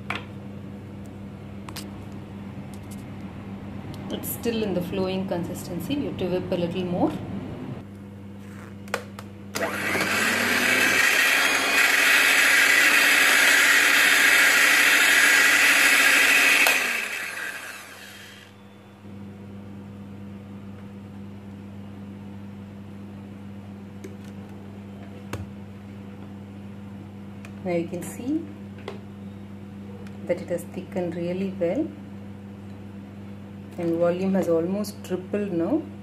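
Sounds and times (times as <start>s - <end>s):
electric hand mixer whisking cream: 9.6s - 18.6s.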